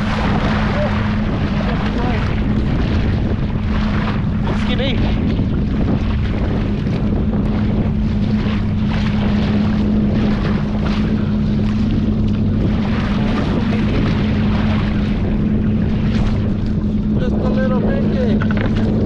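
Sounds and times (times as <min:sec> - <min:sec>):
boat engine idling: 0:00.0 - 0:19.0
wind buffeting microphone: 0:00.0 - 0:19.0.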